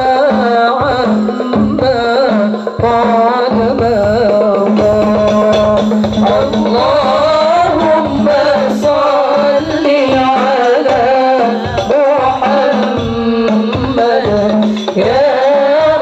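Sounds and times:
steady drum rhythm: 0:00.0 - 0:16.0
person singing melismatic line: 0:05.1 - 0:16.0.

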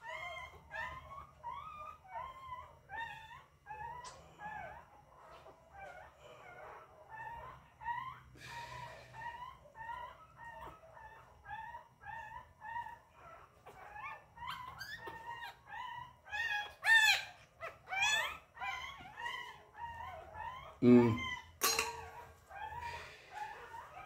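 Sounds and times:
puppy whimpering and yelping: 0:00.0 - 0:24.0.

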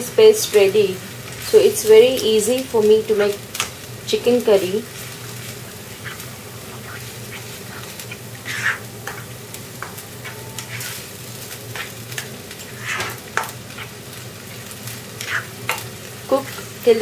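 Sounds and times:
low sizzle of frying: 0:00.0 - 0:17.0
spatula scraping a pan: 0:04.7 - 0:16.7.

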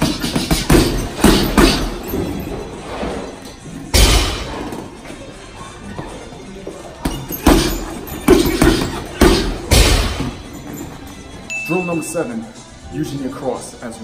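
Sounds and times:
punches hitting heavy bag: 0:00.0 - 0:02.0, 0:07.1 - 0:10.4
background music: 0:00.0 - 0:14.0.

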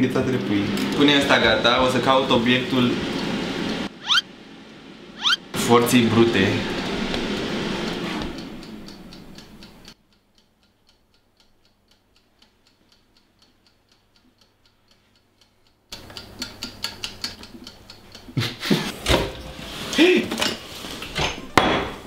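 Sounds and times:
clock-like ticking: 0:03.8 - 0:04.2, 0:06.8 - 0:18.5.

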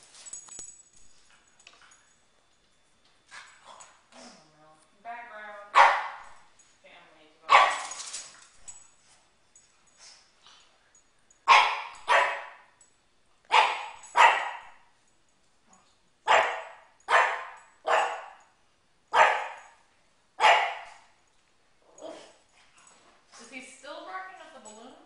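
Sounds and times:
dog barking: 0:05.7 - 0:06.3, 0:07.5 - 0:07.9, 0:11.5 - 0:12.7, 0:13.5 - 0:14.8, 0:16.3 - 0:18.4, 0:19.1 - 0:19.8, 0:20.4 - 0:21.0.

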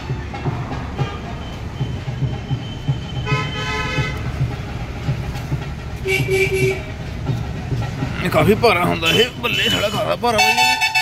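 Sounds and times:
vehicle horn tooting: 0:03.2 - 0:04.3, 0:06.0 - 0:07.0, 0:09.1 - 0:11.0.

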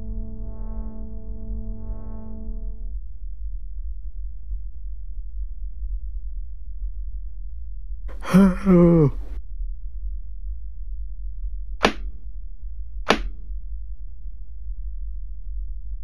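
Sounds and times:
steady low hum: 0:00.0 - 0:16.0
man humming: 0:08.1 - 0:09.4
sharp short clicks: 0:13.1 - 0:13.4.

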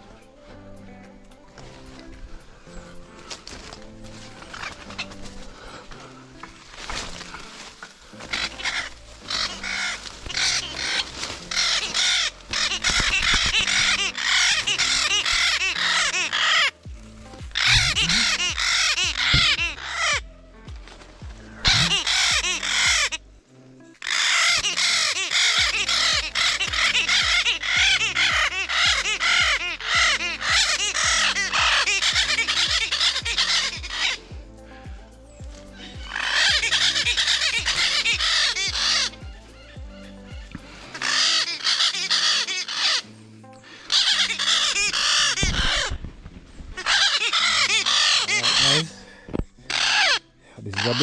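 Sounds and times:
background music with steady beat: 0:00.0 - 0:45.2
parrot squawking loudly: 0:08.3 - 0:16.8, 0:17.5 - 0:20.3, 0:21.6 - 0:23.2, 0:24.0 - 0:34.2, 0:35.8 - 0:40.2, 0:40.8 - 0:43.0, 0:43.8 - 0:45.9, 0:46.8 - 0:49.0, 0:49.7 - 0:51.0.

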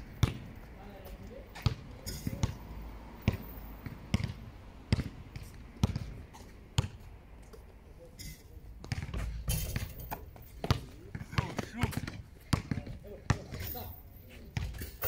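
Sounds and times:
basketball bouncing: 0:00.2 - 0:00.5, 0:01.6 - 0:02.6, 0:03.2 - 0:06.2, 0:06.8 - 0:07.0, 0:08.8 - 0:13.7.

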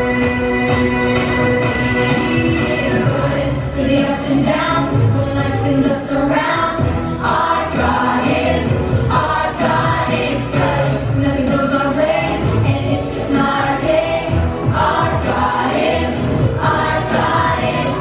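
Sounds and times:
instrumental accompaniment: 0:00.0 - 0:04.1
children's choir singing: 0:01.8 - 0:18.0.

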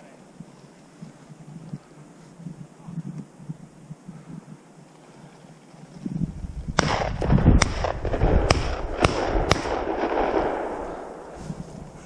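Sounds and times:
footsteps rustling through dry grass: 0:00.3 - 0:06.8, 0:10.0 - 0:12.0
sharp cracks: 0:06.8 - 0:11.4.

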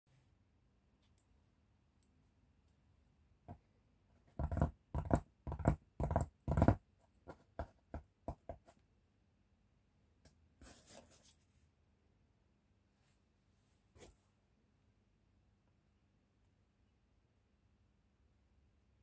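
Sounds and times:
fingers tapping on a padded tabletop: 0:04.2 - 0:08.7.

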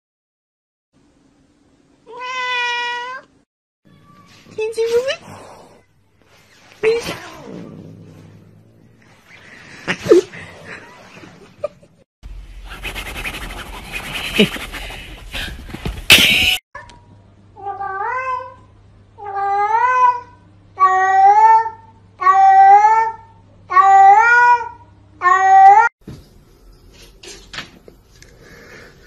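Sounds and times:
cat meowing: 0:02.1 - 0:03.3.

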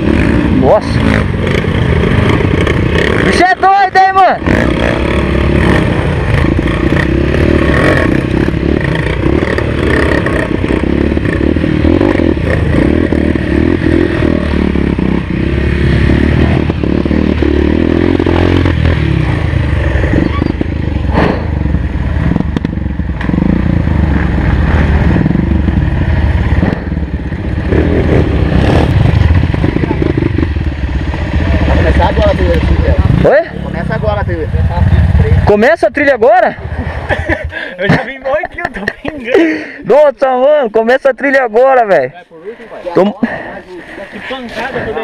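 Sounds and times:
motorcycle engine revving: 0:00.0 - 0:41.8.

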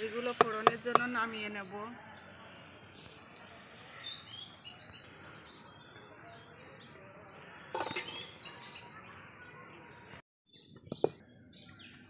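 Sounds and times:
outdoor background noise: 0:00.0 - 0:12.0
small birds chirping: 0:00.0 - 0:12.0
metal pot clattering on bowl: 0:07.8 - 0:08.3.

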